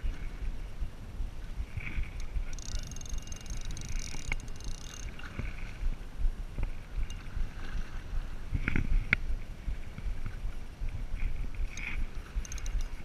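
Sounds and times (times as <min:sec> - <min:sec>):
rumble of open water: 0:00.0 - 0:13.0
wind buffeting microphone: 0:00.0 - 0:13.0
fishing reel whirring: 0:01.8 - 0:05.6, 0:12.1 - 0:13.0
sharp clicks: 0:02.1 - 0:05.2.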